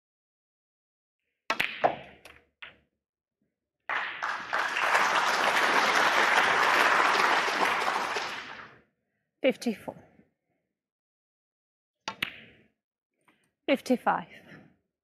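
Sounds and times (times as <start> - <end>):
audience applauding: 3.9 - 8.8.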